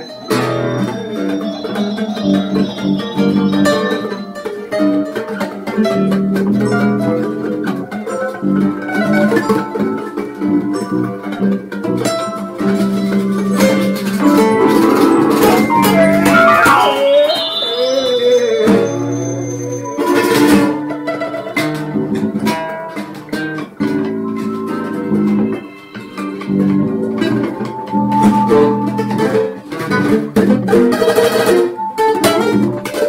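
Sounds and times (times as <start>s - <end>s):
wavering falling whistle tone: 0.0s - 4.6s, 13.6s - 21.6s, 24.3s - 29.6s
acoustic guitar playing: 0.0s - 33.0s.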